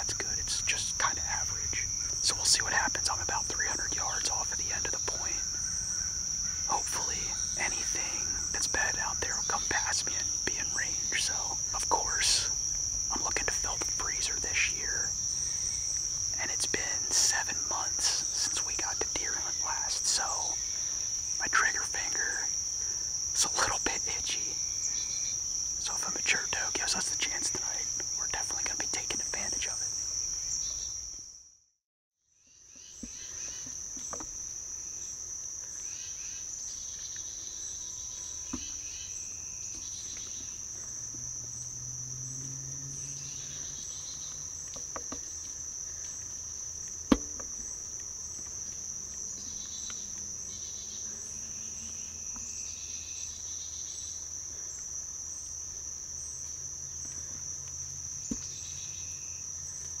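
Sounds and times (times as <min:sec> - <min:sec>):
crickets and insects chirping: 0:00.0 - 0:31.6, 0:32.2 - 1:00.0.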